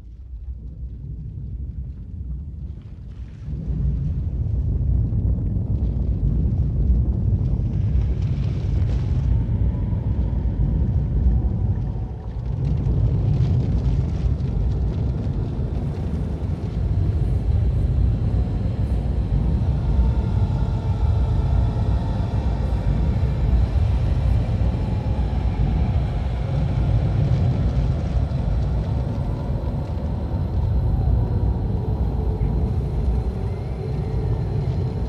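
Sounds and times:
steady low rumble: 0.0 - 35.0.

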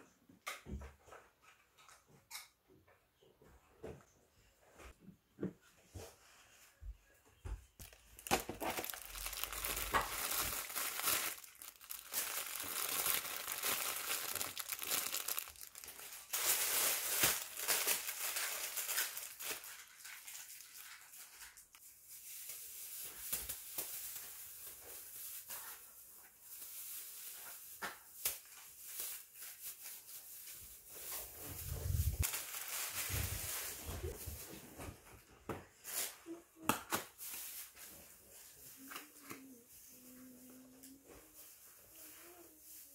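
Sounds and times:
plastic packaging crinkling: 7.8 - 25.8, 26.5 - 34.4.

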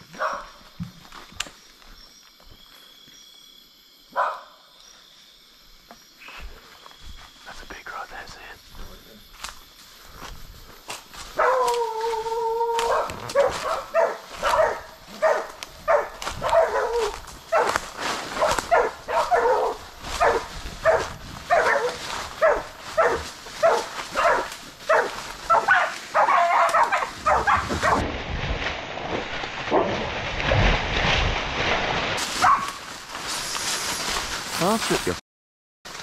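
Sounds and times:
dogs barking: 0.1 - 0.6, 4.1 - 4.6, 11.4 - 28.0, 32.4 - 32.8
dog long drawn-out cry: 11.4 - 17.2.

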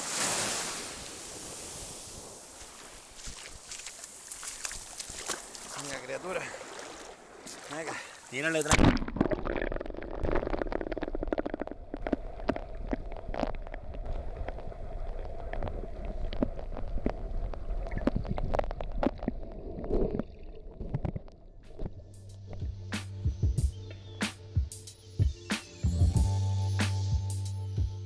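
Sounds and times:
sharp underwater clicks and crackles: 8.5 - 22.6
underwater rumble of moving water: 8.8 - 22.9.

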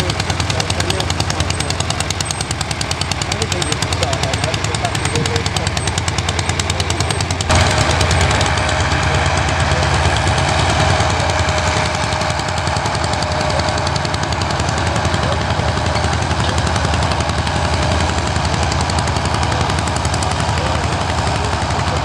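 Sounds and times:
tractor engine running under load: 0.0 - 22.0.

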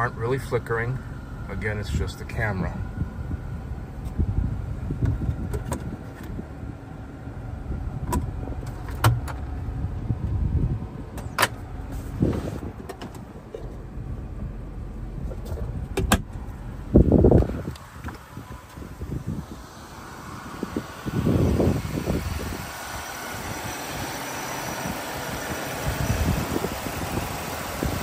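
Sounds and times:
car engine idling: 0.0 - 28.0
clicks and clunks of car interior: 4.0 - 6.5, 8.0 - 10.4, 11.1 - 14.0, 15.1 - 19.2.

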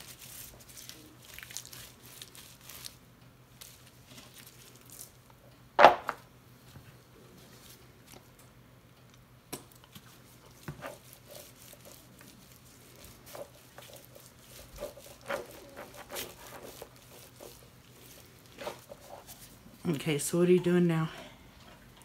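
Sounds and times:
faint steady hum: 0.0 - 22.0
glove rustles: 9.9 - 19.8.

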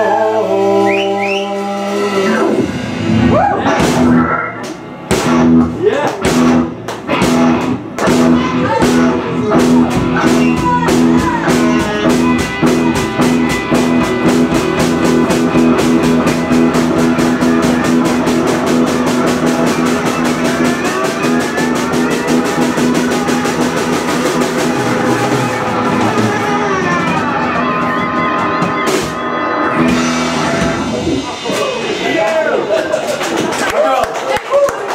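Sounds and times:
blues-rock band playing: 0.0 - 33.7
loud drum hit: 2.5 - 32.8
fast drum beat: 5.1 - 29.2.

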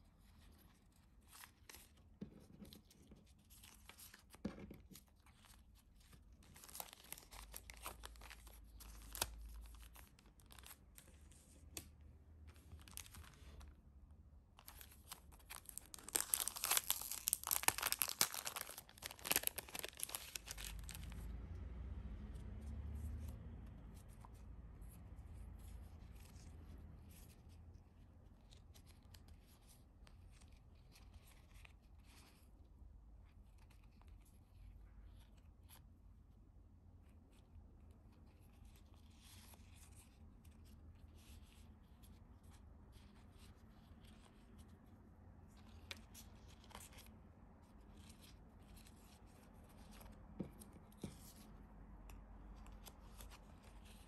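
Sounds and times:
paper sheets rustling and crinkling: 12.5 - 13.7, 14.6 - 21.1.

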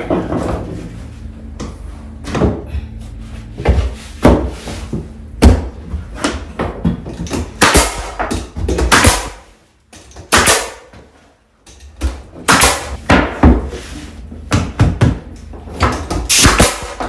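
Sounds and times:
pneumatic nailer firing: 7.6 - 8.2, 8.9 - 9.5, 10.3 - 10.9, 12.5 - 13.0, 16.3 - 17.0.

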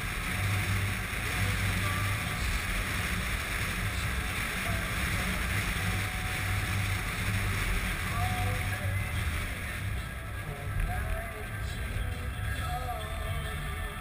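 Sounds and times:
motorcycle engine drone: 0.0 - 14.0.

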